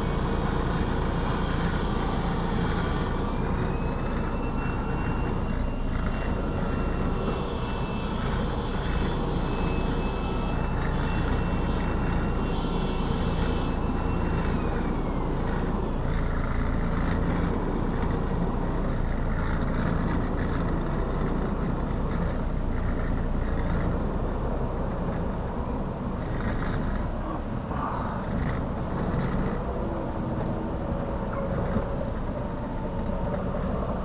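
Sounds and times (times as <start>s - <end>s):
diesel truck engine at low revs: 0.0s - 34.0s
thin high whine: 0.0s - 34.0s.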